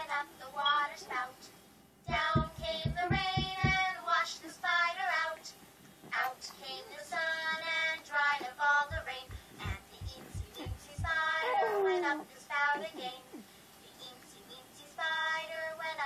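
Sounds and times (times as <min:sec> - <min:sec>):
light low beat: 0:02.1 - 0:03.8, 0:08.9 - 0:11.3.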